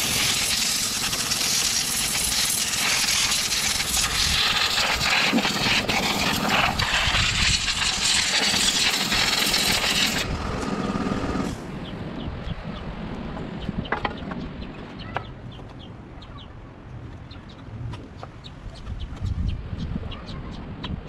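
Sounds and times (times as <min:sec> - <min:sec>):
compressed air blow gun hissing: 0:00.0 - 0:11.6.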